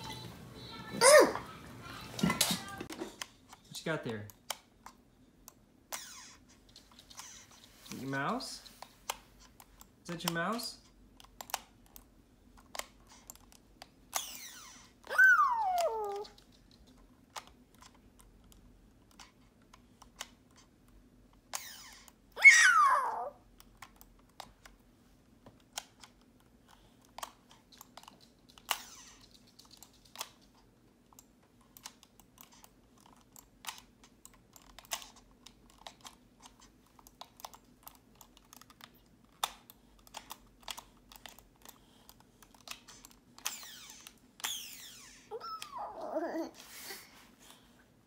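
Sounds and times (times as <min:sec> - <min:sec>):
toddler's voice: 0:00.0 - 0:03.0, 0:15.1 - 0:16.4, 0:22.4 - 0:23.4, 0:45.3 - 0:46.6.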